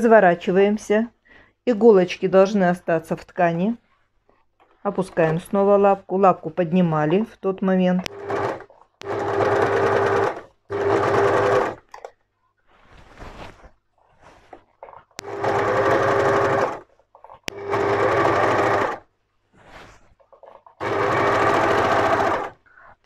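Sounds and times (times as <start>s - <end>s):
overlocker stitching: 8.0s - 12.1s, 14.2s - 22.6s.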